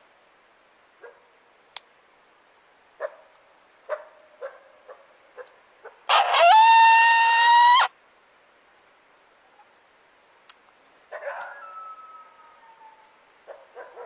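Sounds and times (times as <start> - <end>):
coyote call yips: 5.8 - 7.9, 11.2 - 14.0
coyote call howl: 6.1 - 7.9, 11.2 - 13.3.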